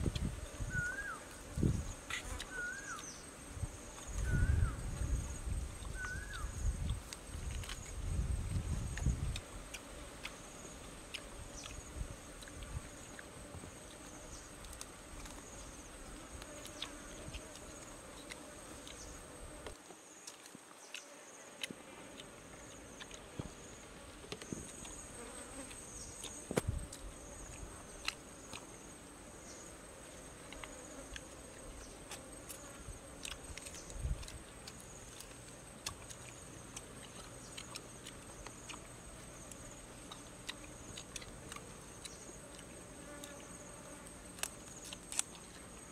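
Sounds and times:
insects droning: 0.0 - 45.9
small eating clicks: 5.7 - 23.4, 24.2 - 29.0, 30.2 - 45.9.

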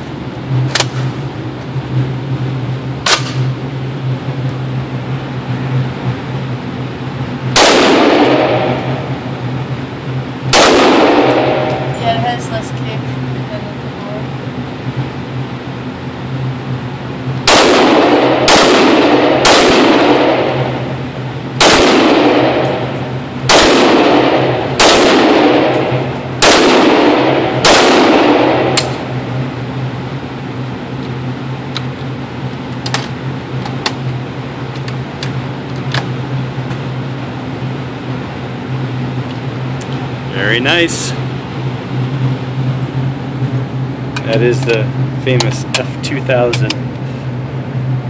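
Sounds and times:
steady low hum: 0.0 - 48.0
rifle shots with echoing tail: 7.5 - 9.1, 10.5 - 11.9, 17.4 - 20.9, 21.6 - 29.1.

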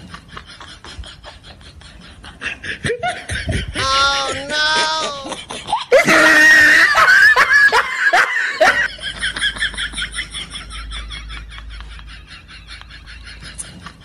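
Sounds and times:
people laughing: 0.0 - 14.0.

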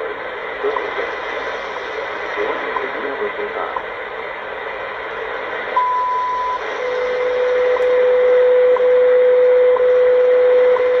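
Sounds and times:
radio static hiss: 0.0 - 9.0
steady audio tone: 0.0 - 11.0
long beep: 5.8 - 6.7.

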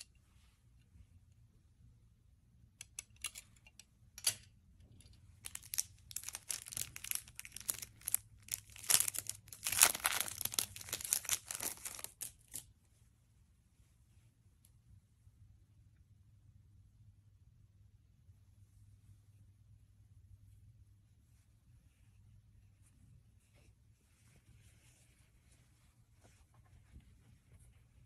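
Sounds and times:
plastic sleeve crinkling: 5.4 - 12.6.

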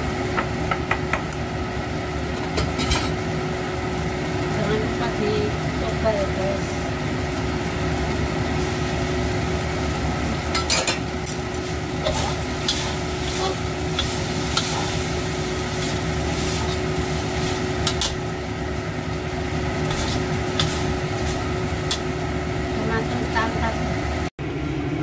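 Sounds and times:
food sizzling: 0.0 - 24.3
metal spatula scraping a wok: 11.6 - 18.2, 19.8 - 22.1.

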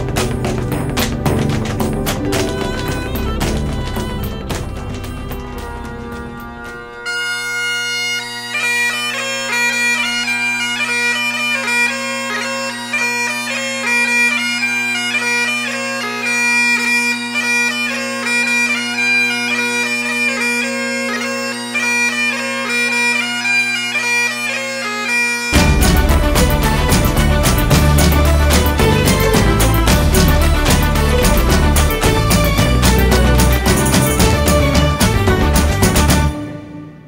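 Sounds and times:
loud dense music: 0.0 - 8.5, 25.5 - 37.0
bagpipe music: 0.0 - 37.0.

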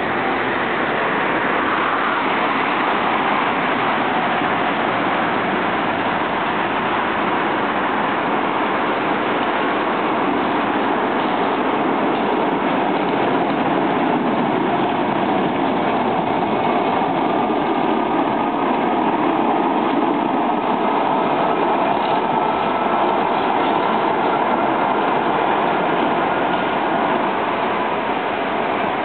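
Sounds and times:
traffic noise: 0.0 - 29.0
tram running on street tracks: 0.0 - 29.0.

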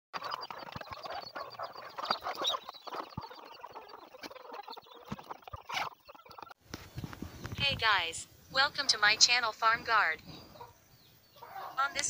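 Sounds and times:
chickens clucking: 0.1 - 8.0, 8.6 - 12.0
taps and scratches: 0.2 - 7.8.

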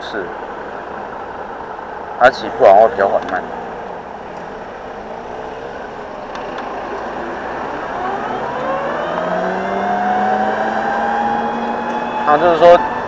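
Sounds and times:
road noise: 0.0 - 13.0
wind: 0.0 - 13.0
electric scooter motor whine: 3.5 - 13.0.

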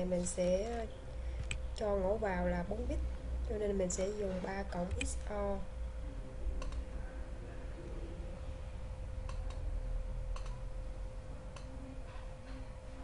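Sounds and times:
faint electrical hum: 0.0 - 13.0
computer mouse buttons clicking: 10.3 - 10.6.

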